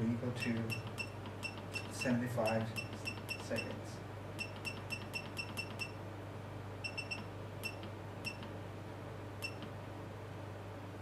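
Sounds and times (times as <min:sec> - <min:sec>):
short high keypad beeps: 0:00.4 - 0:03.7, 0:04.4 - 0:06.0, 0:06.8 - 0:08.5.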